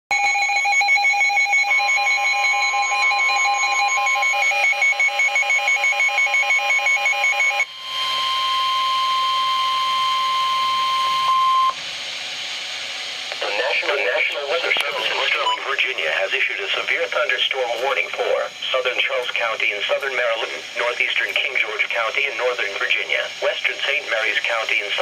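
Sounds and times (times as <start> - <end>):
steady warning alarm tone: 0.1 - 25.0
rapid two-pitch beeping: 15.0 - 15.9.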